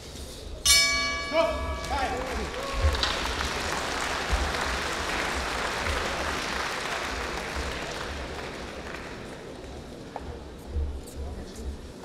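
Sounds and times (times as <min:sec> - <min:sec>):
crowd applauding: 0:01.8 - 0:10.0.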